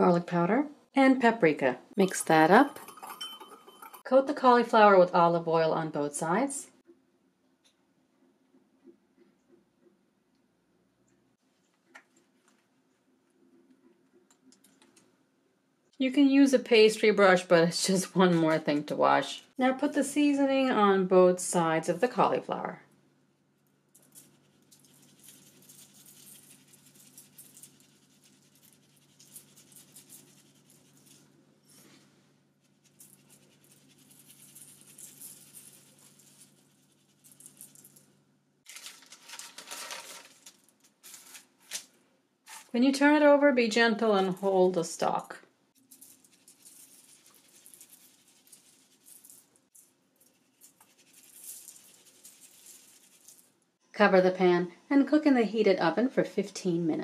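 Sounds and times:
spice grains sprinkled by hand: 24.0s - 32.0s, 32.6s - 38.1s, 45.7s - 53.5s.

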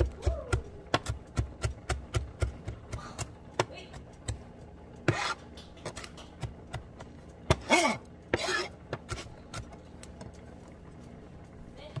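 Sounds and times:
knife scraping across board: 5.1s - 6.0s, 7.6s - 9.4s.

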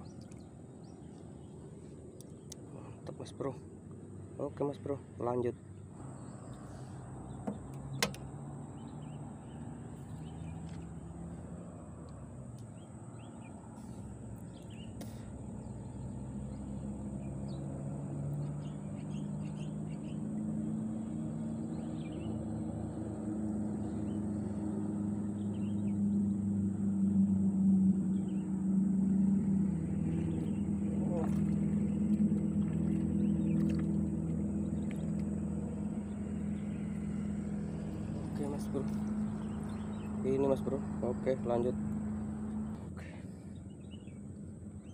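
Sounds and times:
motor engine running: 24.5s - 44.9s.

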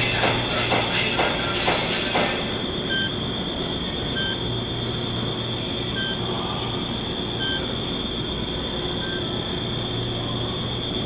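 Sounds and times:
high-pitched whine: 0.0s - 11.0s
short electronic beeps: 2.9s - 3.2s, 4.2s - 4.4s, 6.0s - 6.2s, 9.0s - 9.2s.

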